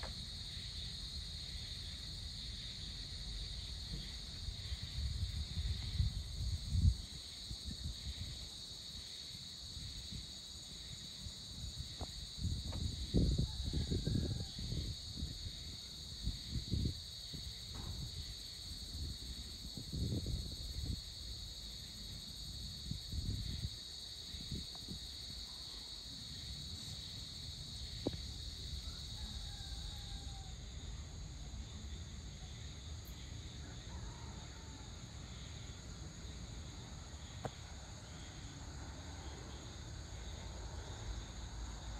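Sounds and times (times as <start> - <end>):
insect chorus: 0.0 - 41.9
wind buffeting microphone: 4.5 - 8.4, 11.9 - 21.3, 22.6 - 25.1.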